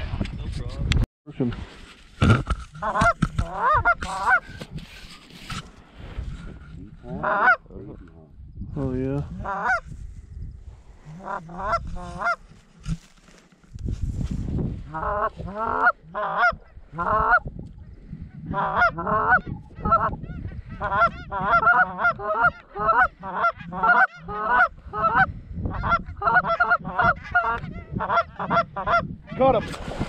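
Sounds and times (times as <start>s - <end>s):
goose calls honking: 2.8s - 4.4s, 7.2s - 7.6s, 9.4s - 9.8s, 11.2s - 12.4s, 14.9s - 17.4s, 18.5s - 29.1s.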